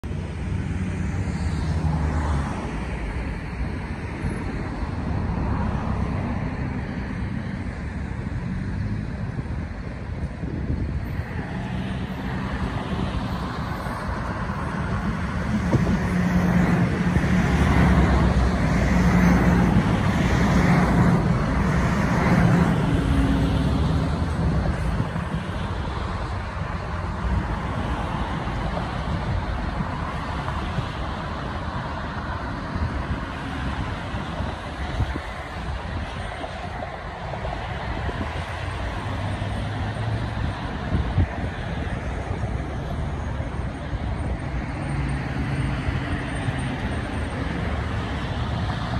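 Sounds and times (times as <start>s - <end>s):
road traffic noise: 0.0s - 48.9s
subway train passing: 11.0s - 48.9s.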